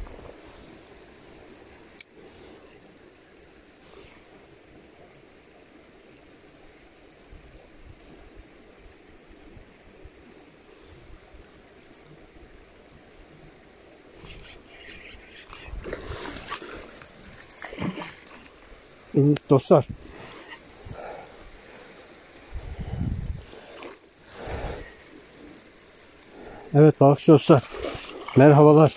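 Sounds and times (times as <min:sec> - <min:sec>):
stream trickling: 0:00.0 - 0:28.9
fish splashing at surface: 0:15.5 - 0:18.7, 0:27.6 - 0:28.6.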